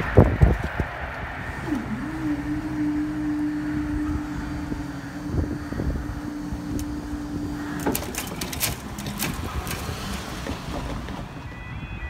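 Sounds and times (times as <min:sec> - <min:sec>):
low rumble: 0:00.0 - 0:11.1
barrier mechanism humming: 0:00.0 - 0:11.5
barrier clicks and clunks: 0:04.8 - 0:11.8.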